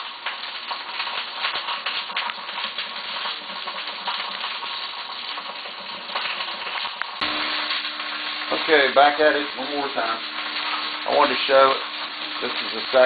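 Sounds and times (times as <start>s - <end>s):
meat sizzling in frying pan: 0.0s - 13.0s.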